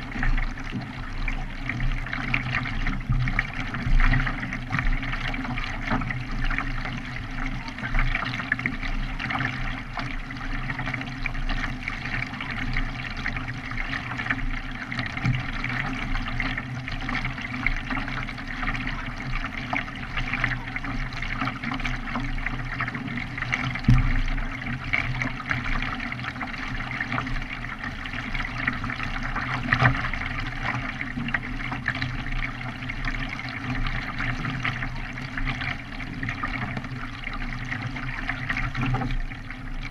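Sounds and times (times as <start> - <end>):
water splashing against kayak: 0.0 - 39.9.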